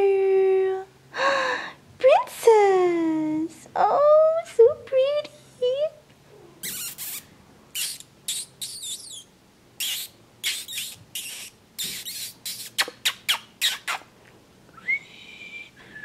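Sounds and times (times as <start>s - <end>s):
person squeaking and clicking: 6.6s - 14.1s
person whistling: 14.8s - 16.0s.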